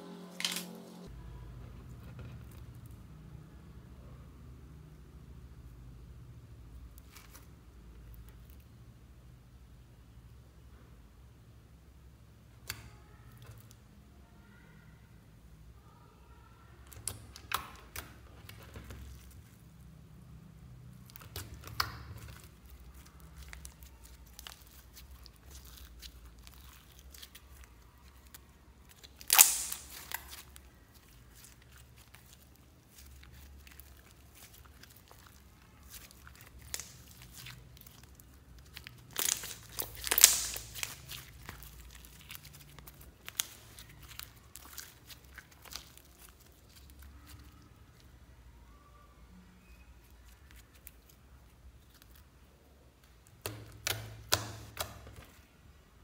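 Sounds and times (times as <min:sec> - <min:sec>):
slime sticky clicks and crackles: 0:16.8 - 0:19.6, 0:21.0 - 0:48.1, 0:50.0 - 0:52.2, 0:53.0 - 0:55.4.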